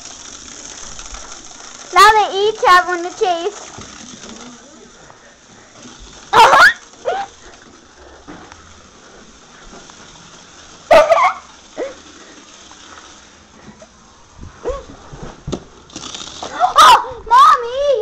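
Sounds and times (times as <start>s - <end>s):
animal calls with bending pitch: 6.3s - 7.4s, 10.9s - 12.0s.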